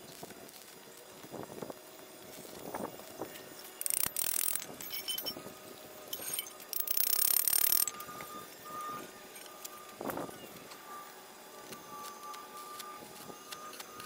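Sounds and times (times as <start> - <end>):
light metallic clinks: 3.8 - 5.5, 6.1 - 8.1.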